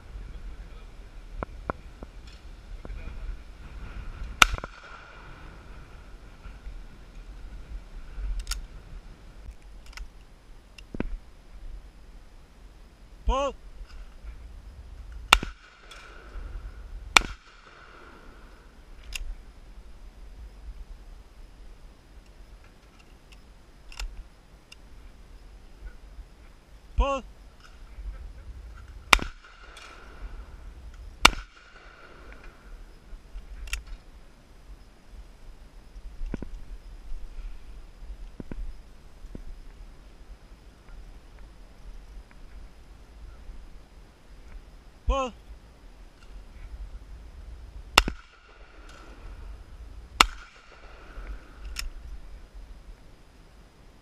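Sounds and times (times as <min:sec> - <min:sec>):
shotgun shots: 0:04.4 - 0:05.4, 0:15.3 - 0:16.4, 0:17.1 - 0:18.4, 0:29.1 - 0:30.5, 0:31.2 - 0:32.4, 0:48.0 - 0:49.3, 0:50.2 - 0:51.2.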